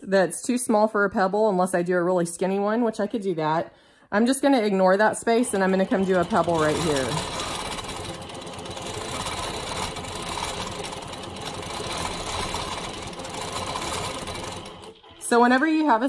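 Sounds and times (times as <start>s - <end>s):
quilting machine stitching: 4.9s - 16.0s.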